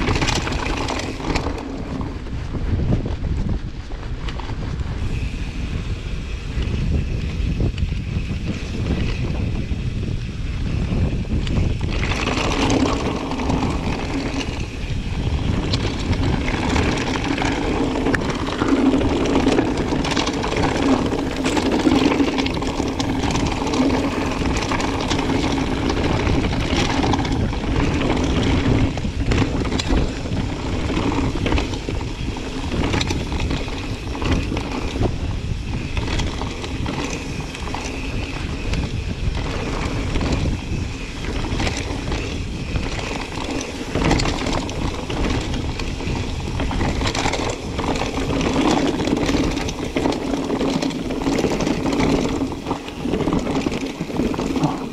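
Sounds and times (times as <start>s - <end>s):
bike knocks and rattles: 0.0s - 3.6s, 6.5s - 54.9s
bike tyres on stony trail: 0.0s - 54.9s.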